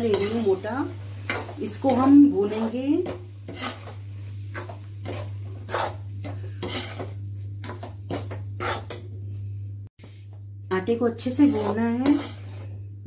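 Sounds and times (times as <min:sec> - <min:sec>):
metal spatula scraping a pan: 0:00.0 - 0:09.1, 0:11.2 - 0:12.9.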